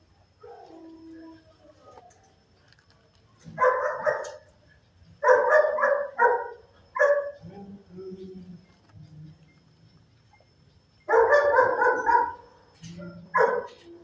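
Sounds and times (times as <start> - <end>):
dog barking: 0.4 - 0.8, 3.5 - 4.5, 5.2 - 7.7, 11.1 - 14.0.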